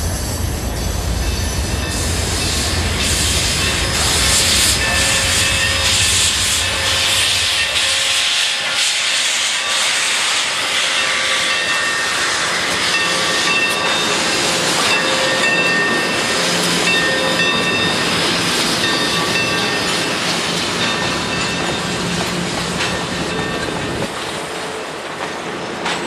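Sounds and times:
model locomotive steam hiss: 0:00.0 - 0:20.4.

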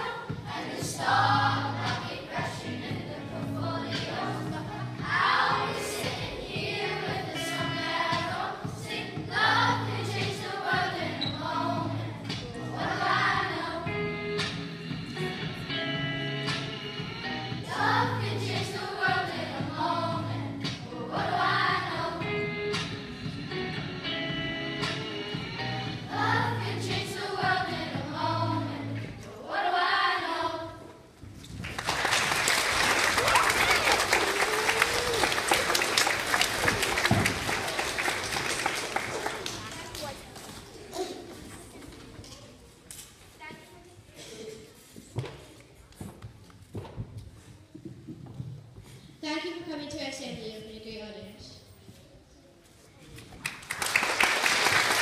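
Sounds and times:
children's choir singing: 0:00.0 - 0:14.4, 0:15.6 - 0:22.8, 0:24.0 - 0:31.1, 0:32.4 - 0:40.0.

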